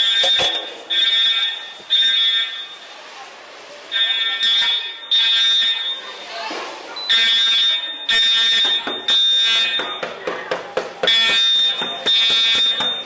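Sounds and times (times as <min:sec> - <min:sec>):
fire alarm horns: 0:00.0 - 0:02.9, 0:03.9 - 0:06.2, 0:07.0 - 0:10.1, 0:11.0 - 0:13.0.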